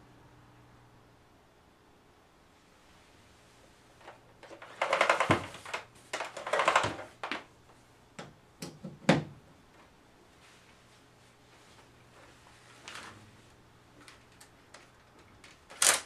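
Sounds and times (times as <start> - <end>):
plastic rattling: 4.0 - 7.5, 14.0 - 16.0
sharp plastic clicks: 14.1 - 16.0.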